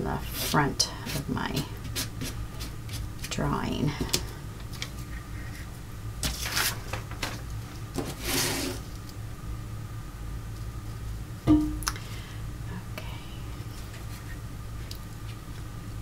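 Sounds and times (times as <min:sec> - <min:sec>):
paper rustling: 0:06.2 - 0:07.4.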